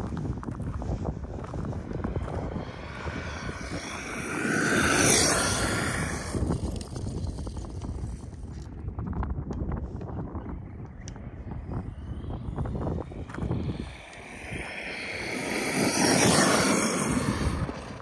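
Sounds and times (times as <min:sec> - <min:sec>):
toy truck electric motor whining: 0:03.3 - 0:07.3, 0:13.9 - 0:18.0.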